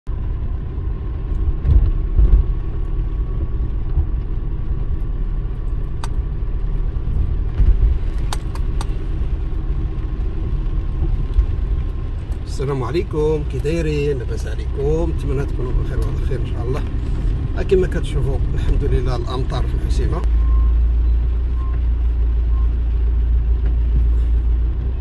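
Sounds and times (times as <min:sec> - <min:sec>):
car engine and tyres rumbling: 0:00.1 - 0:25.0
sharp clicks: 0:05.7 - 0:06.2, 0:08.1 - 0:09.0.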